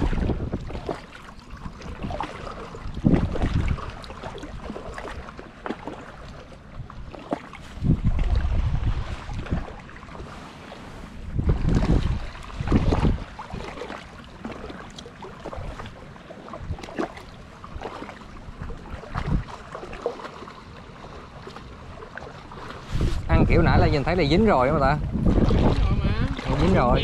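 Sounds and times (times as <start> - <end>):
wind buffeting microphone: 0.0 - 1.0, 1.6 - 5.2, 6.7 - 13.9, 17.7 - 19.8, 22.5 - 27.0.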